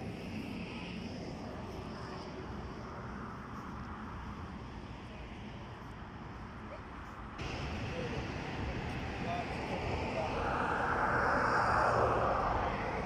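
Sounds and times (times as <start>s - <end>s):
distant road traffic hum: 0.0s - 13.0s.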